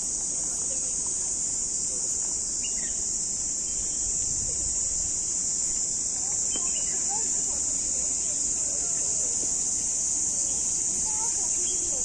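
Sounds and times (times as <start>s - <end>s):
insects chirring: 0.0s - 12.0s
faint bird chirps: 6.4s - 7.2s.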